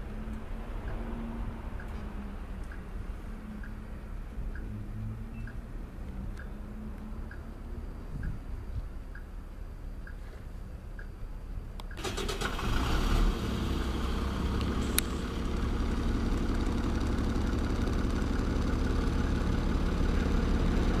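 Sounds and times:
diesel bus engine starting and idling: 0:11.8 - 0:21.0.

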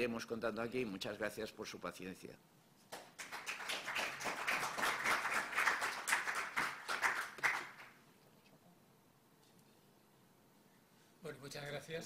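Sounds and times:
audience applauding: 0:03.0 - 0:08.0.

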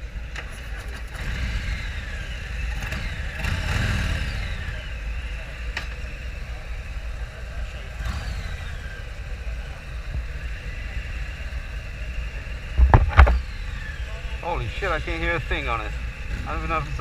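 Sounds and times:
electric motorcycles whining past: 0:00.0 - 0:17.0
wind noise: 0:12.8 - 0:13.4.

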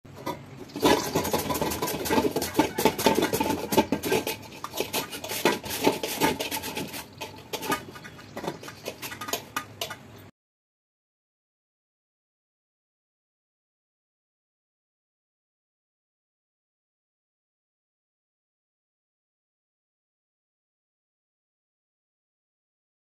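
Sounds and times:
potato slicer scraping strokes: 0:00.8 - 0:09.4.

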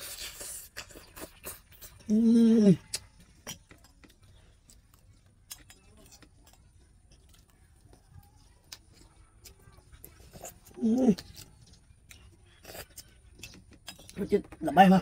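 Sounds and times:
chewing clicks: 0:02.8 - 0:14.6.

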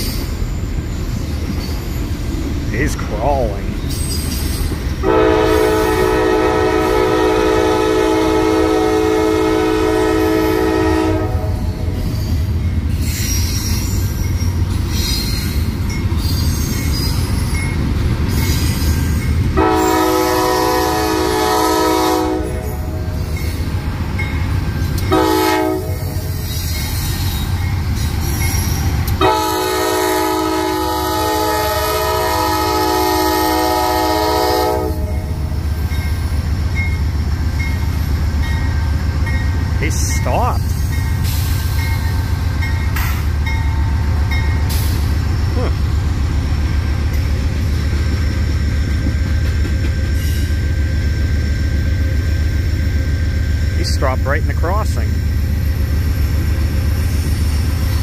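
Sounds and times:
train wheels rumbling: 0:00.0 - 0:58.0
locomotive air horn blasts: 0:05.0 - 0:11.6, 0:19.6 - 0:22.9, 0:25.1 - 0:26.3, 0:29.2 - 0:35.2.

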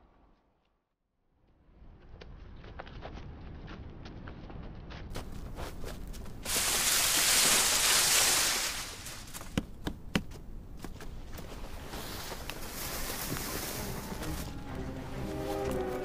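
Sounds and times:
rustling of undergrowth: 0:05.1 - 0:16.0.

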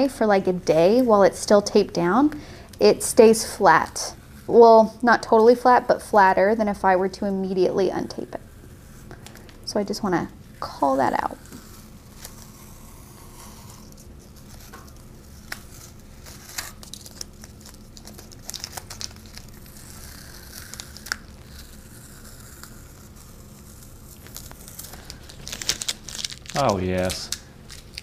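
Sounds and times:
tape peeling and crumpling: 0:07.7 - 0:28.0.

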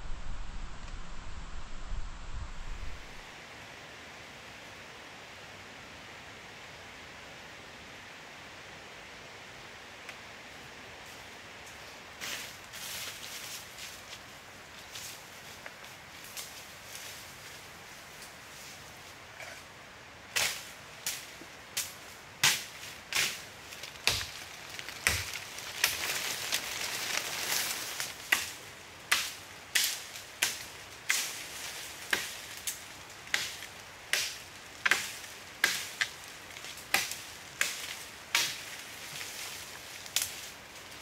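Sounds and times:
wood being chopped: 0:22.4 - 0:26.0, 0:33.3 - 0:36.2.

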